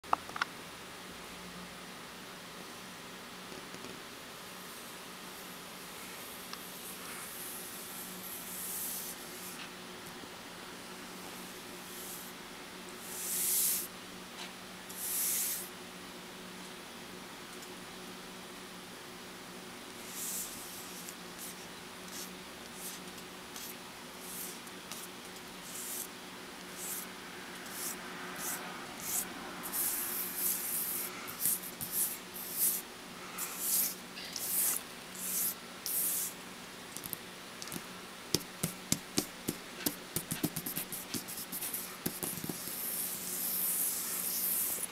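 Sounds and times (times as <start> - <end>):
steady low hum: 4.1 - 44.9
fingertip taps: 37.0 - 40.6.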